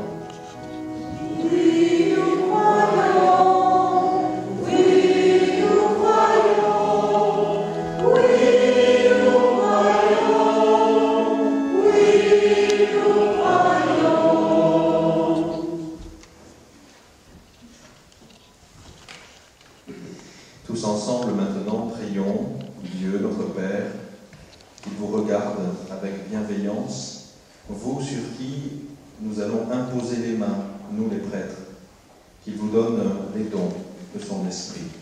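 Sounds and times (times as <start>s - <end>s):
congregation singing a hymn: 0.0s - 16.5s.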